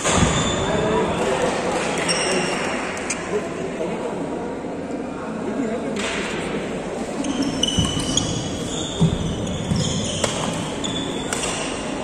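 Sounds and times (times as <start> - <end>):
shoe squeaks: 2.0 - 2.6, 7.2 - 11.6
footfalls on court floor: 7.7 - 10.7
racket striking shuttlecock: 10.1 - 11.9.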